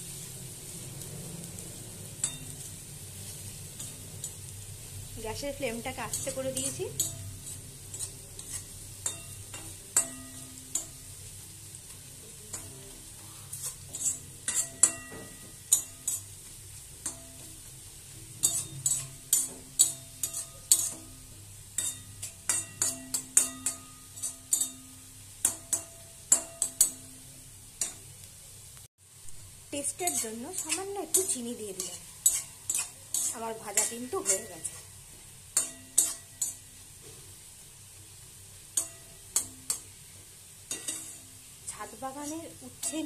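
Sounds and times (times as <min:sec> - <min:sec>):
spatula scraping a metal wok: 0:00.0 - 0:28.0, 0:29.8 - 0:43.0
faint frying sizzle: 0:00.0 - 0:43.0
sharp taps ringing the pan: 0:09.0 - 0:11.0, 0:14.5 - 0:16.2, 0:21.8 - 0:27.1, 0:38.8 - 0:39.9.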